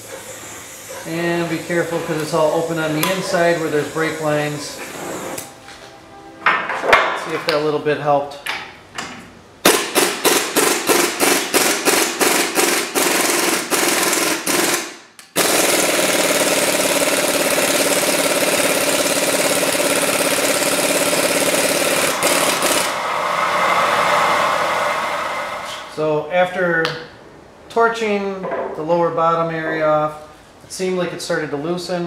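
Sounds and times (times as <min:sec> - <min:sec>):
impact wrench hammering: 0:09.6 - 0:23.0.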